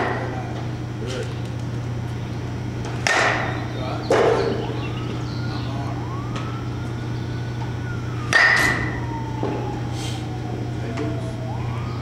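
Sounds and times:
metal bat hitting ball: 0:03.0 - 0:04.6, 0:08.3 - 0:09.0.

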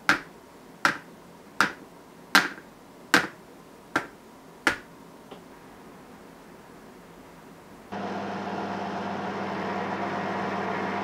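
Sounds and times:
plastic mold tapping on wood: 0:00.0 - 0:01.8, 0:02.4 - 0:02.6, 0:03.2 - 0:03.4, 0:04.0 - 0:04.9.

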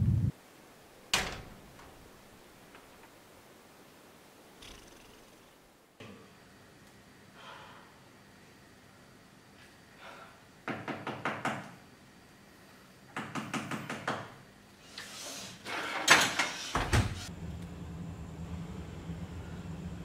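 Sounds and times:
low rumble: 0:00.0 - 0:00.4
rapid knocking on door: 0:10.6 - 0:11.6.

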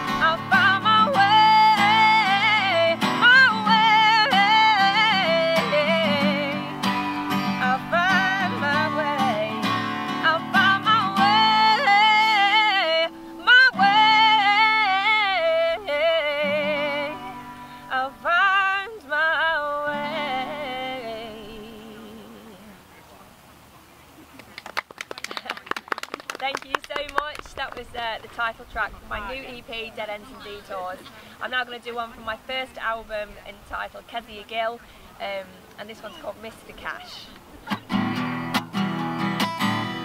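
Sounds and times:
acoustic guitar strumming: 0:00.0 - 0:22.7, 0:35.3 - 0:40.0
woman singing: 0:00.0 - 0:22.8.

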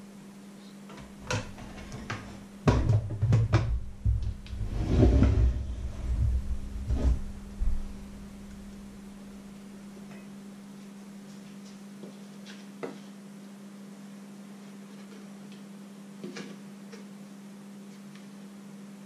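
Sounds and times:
steady low hum: 0:00.0 - 0:12.4.

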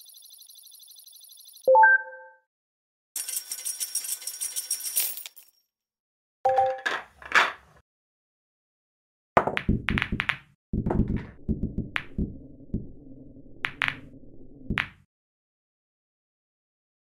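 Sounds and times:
billiard balls clattering: 0:06.5 - 0:07.8.

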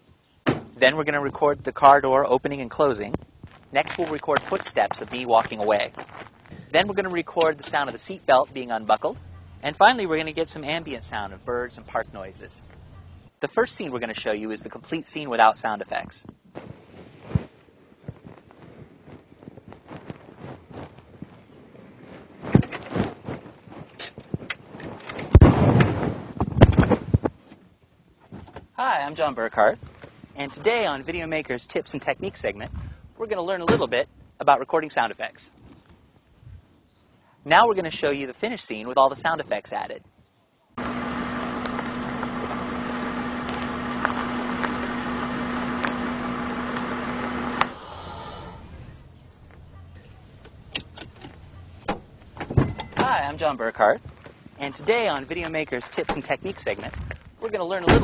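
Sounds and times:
tyres crunching on gravel: 0:02.4 - 0:13.2, 0:40.8 - 0:47.9
car engine hum: 0:09.0 - 0:13.4, 0:40.8 - 0:53.4.

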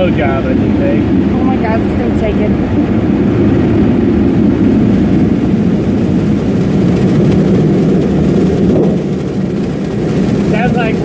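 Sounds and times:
air-dryer blowers running: 0:03.4 - 0:11.0.

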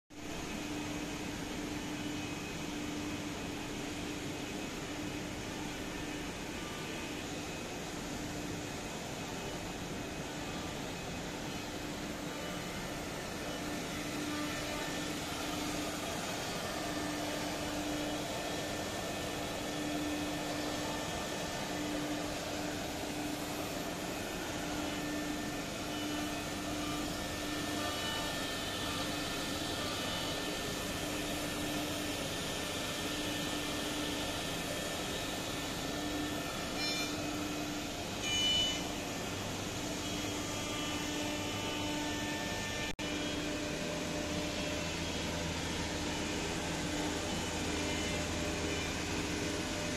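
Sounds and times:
router spindle humming: 0:11.5 - 0:49.9.

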